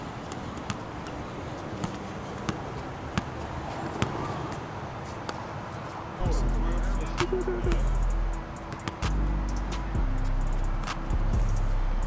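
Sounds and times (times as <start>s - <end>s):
outdoor background noise: 0.0s - 12.0s
basketball bouncing on court: 1.8s - 3.4s, 8.7s - 9.1s.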